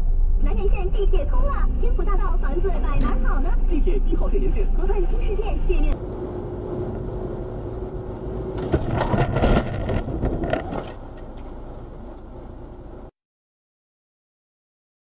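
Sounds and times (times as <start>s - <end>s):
road and engine noise: 0.0s - 13.1s
car crash impacts: 8.5s - 11.4s.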